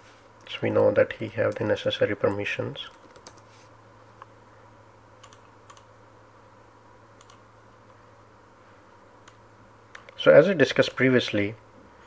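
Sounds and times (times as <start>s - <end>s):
low steady hum: 0.0s - 12.0s
computer clicks: 2.9s - 3.5s, 5.2s - 5.9s, 7.2s - 7.4s.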